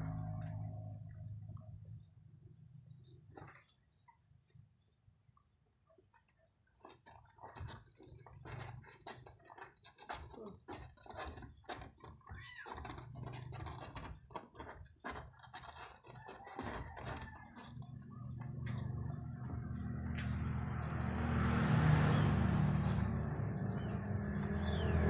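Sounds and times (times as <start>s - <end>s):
low steady rumble: 0.0s - 3.0s, 17.4s - 25.0s.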